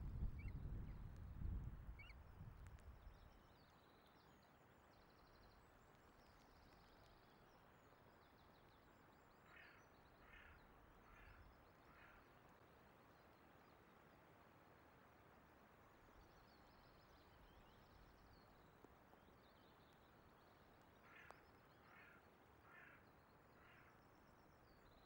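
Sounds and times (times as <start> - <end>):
wind buffeting microphone: 0.0 - 3.1
wind and rain hiss: 0.0 - 9.5, 10.1 - 24.8
faint bird song: 0.0 - 25.0.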